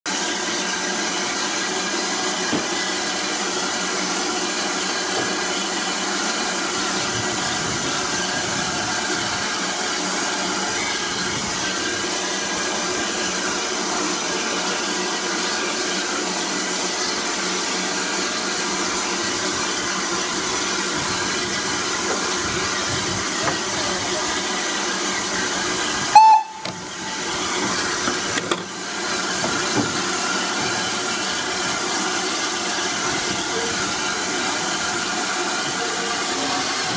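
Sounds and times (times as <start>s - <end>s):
steam hissing: 0.2s - 36.9s
steam locomotive whistle: 26.0s - 27.6s.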